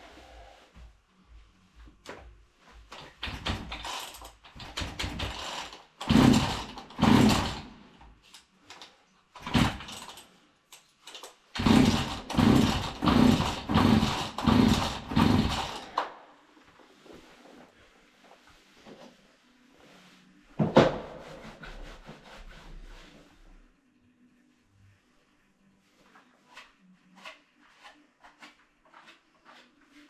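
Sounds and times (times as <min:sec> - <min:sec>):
chainsaw starter cord pulls: 0:05.0 - 0:07.6, 0:11.6 - 0:15.9.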